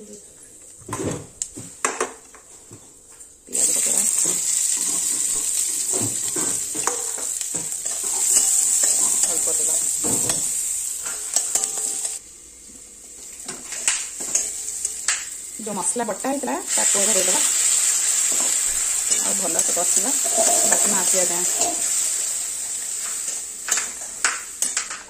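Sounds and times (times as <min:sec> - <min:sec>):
onions sizzling in hot oil: 0:03.4 - 0:25.0.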